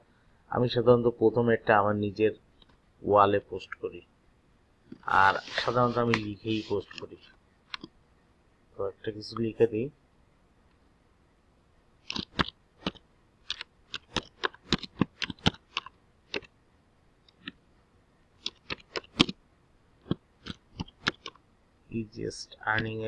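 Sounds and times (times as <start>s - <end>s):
keyboard typing clicks: 12.0s - 16.5s, 18.4s - 19.4s, 20.0s - 21.4s.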